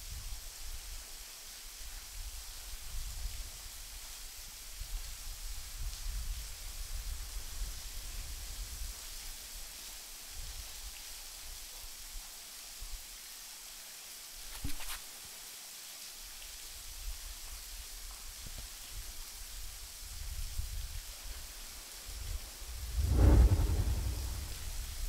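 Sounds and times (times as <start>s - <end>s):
low rumble: 22.3s - 25.0s.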